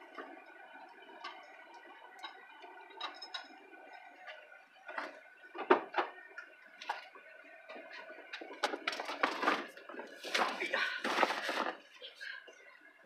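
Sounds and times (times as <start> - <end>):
rustling: 9.2 - 11.9.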